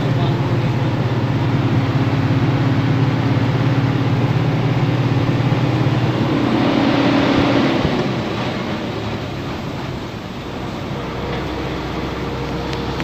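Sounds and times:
vehicle engine running at speed: 0.0 - 13.0
wind and road noise: 0.0 - 13.0.

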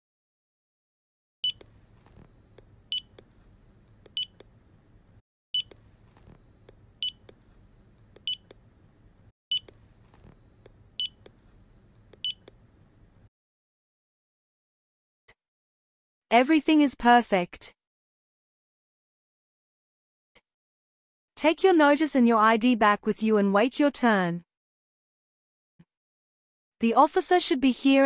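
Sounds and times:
faint low hum: 1.5 - 13.3.

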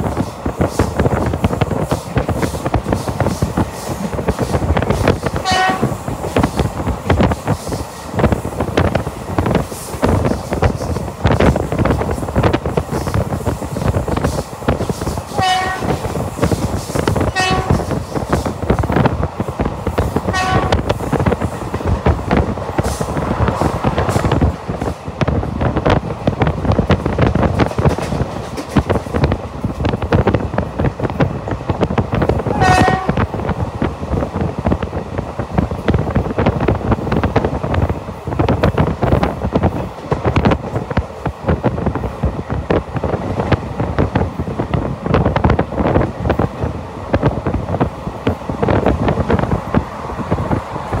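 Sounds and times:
train rumble: 0.0 - 51.0
train horn: 5.4 - 6.0, 15.3 - 16.1, 17.3 - 17.9, 20.3 - 20.9, 32.5 - 33.3.

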